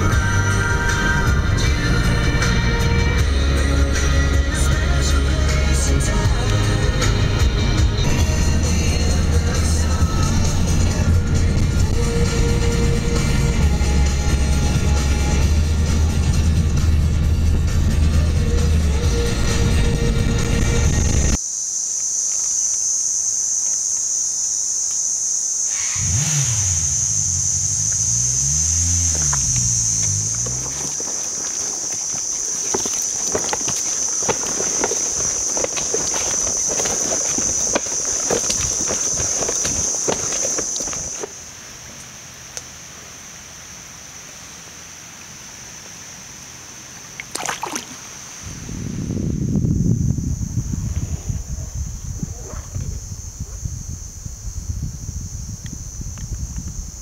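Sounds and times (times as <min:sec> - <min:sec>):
vehicle engine: 0:00.0 - 0:21.4, 0:25.6 - 0:43.6
insects droning high-pitched: 0:00.0 - 0:57.0
quiet water noise: 0:27.0 - 0:48.8
dog splashing in water: 0:28.2 - 0:41.4, 0:47.2 - 0:48.1.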